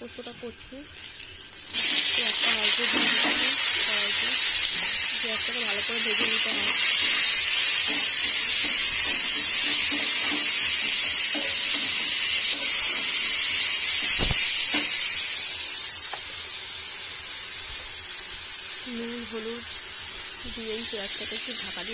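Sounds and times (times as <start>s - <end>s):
onions sizzling in hot oil: 0.0s - 21.9s
metal spatula stirring in wok: 1.8s - 3.8s, 5.7s - 13.2s.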